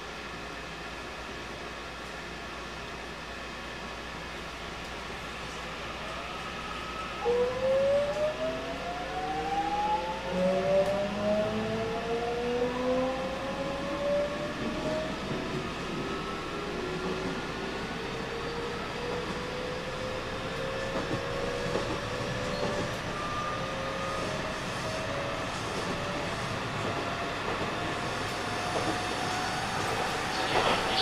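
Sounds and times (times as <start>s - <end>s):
train running rumble: 14.3s - 31.0s.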